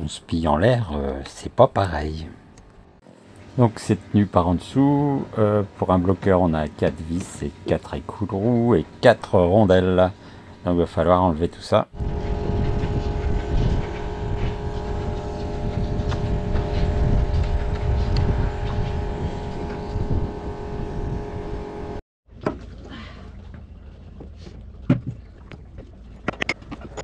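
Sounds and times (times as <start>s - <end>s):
engine running: 11.9s - 22.0s.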